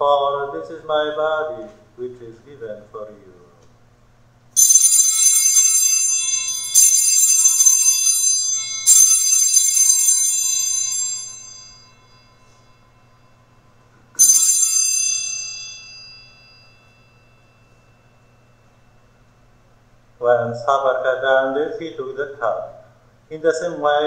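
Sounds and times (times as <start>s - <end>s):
altar bells jingling: 4.6s - 18.9s.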